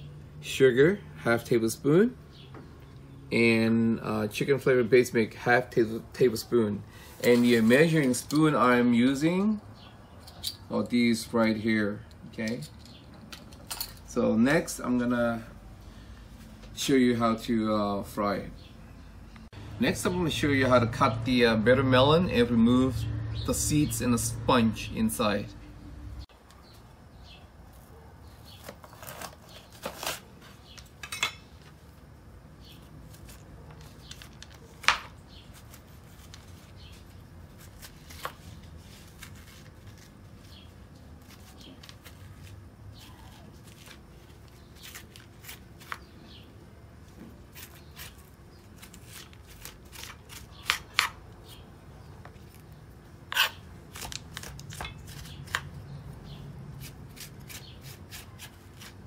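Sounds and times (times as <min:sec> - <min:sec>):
knife cutting melon: 0:32.8 - 0:46.2, 0:47.3 - 0:51.6, 0:52.5 - 0:56.0, 0:56.7 - 0:59.0.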